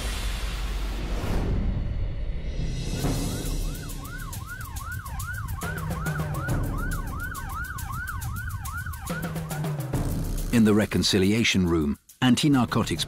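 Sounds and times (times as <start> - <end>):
police siren yelping: 3.0 - 10.0.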